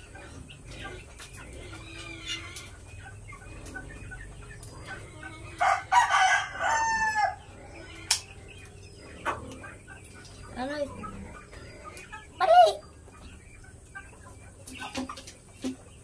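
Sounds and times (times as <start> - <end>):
chickens clucking: 0.0 - 16.0
rooster crowing: 5.6 - 7.4.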